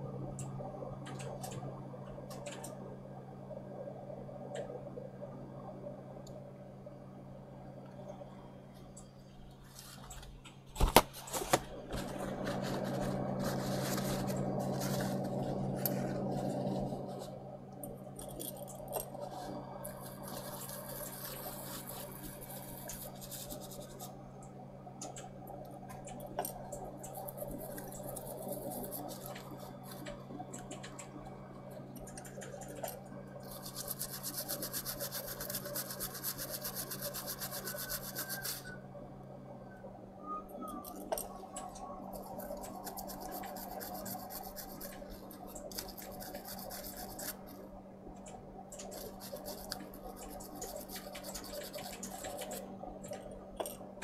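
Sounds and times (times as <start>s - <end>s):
steady low hum: 0.0s - 54.0s
scrubbing and scraping: 11.2s - 17.4s, 18.3s - 24.2s.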